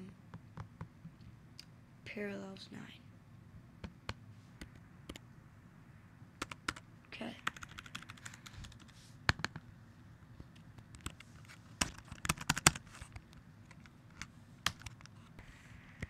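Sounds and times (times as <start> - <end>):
computer keyboard keys clicking: 7.5 - 9.6, 11.8 - 13.9, 14.6 - 15.1.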